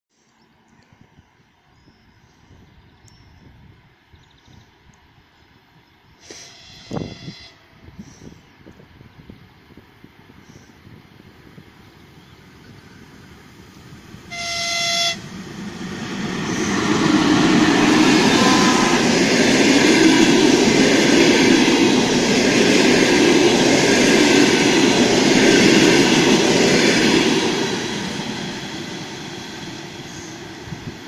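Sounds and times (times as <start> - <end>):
train running on rails: 0.8 - 31.0
high locomotive horn blast: 6.4 - 7.7, 14.3 - 15.5, 16.4 - 20.4.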